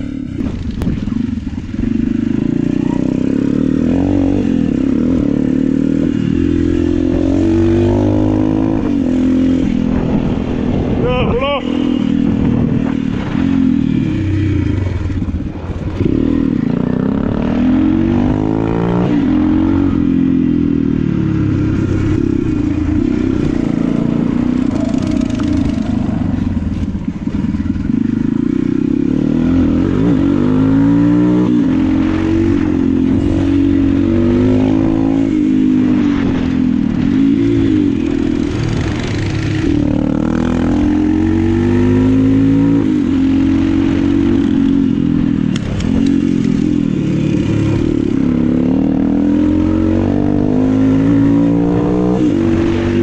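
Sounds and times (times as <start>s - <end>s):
go-kart engine revving: 10.7s - 53.0s.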